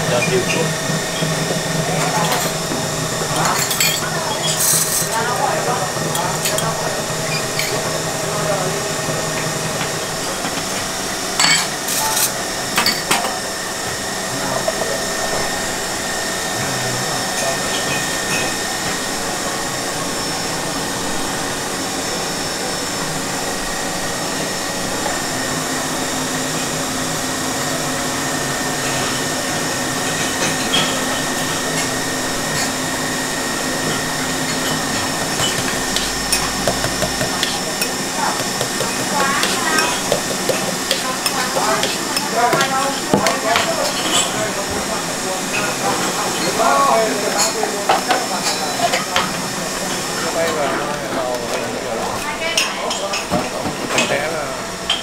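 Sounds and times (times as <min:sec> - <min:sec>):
faint voices: 0:00.0 - 0:10.8, 0:34.8 - 0:54.9
porcelain cups clinking: 0:02.0 - 0:07.9, 0:33.8 - 0:44.4.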